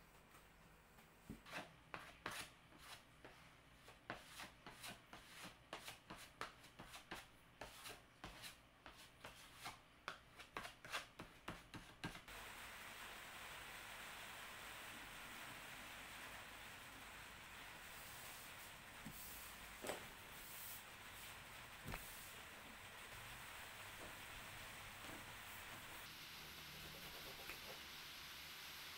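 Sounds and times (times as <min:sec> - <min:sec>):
hand sanding wood: 0:01.5 - 0:09.8
steady hiss: 0:12.3 - 0:28.9.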